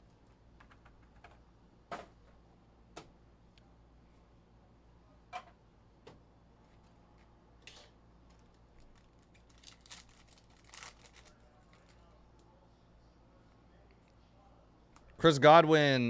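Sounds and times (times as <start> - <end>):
foil wrapper crinkling and tearing: 8.4 - 12.1.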